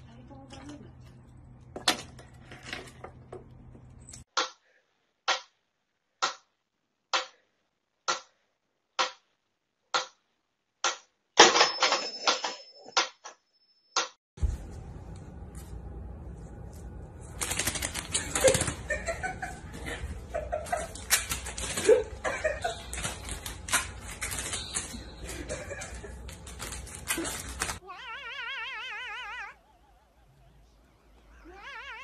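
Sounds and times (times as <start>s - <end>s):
rapid clicking and rattling: 17.3s - 19.2s, 20.6s - 27.8s.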